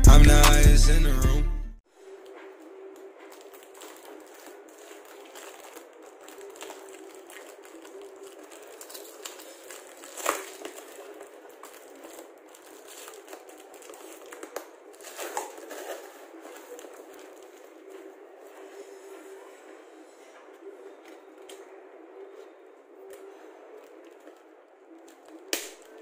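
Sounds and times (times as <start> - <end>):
cardboard and tape rustling: 2.4 - 19.2
plastic wrapping crinkling: 2.9 - 19.2, 23.0 - 26.0
sharp snap: 25.5 - 25.8.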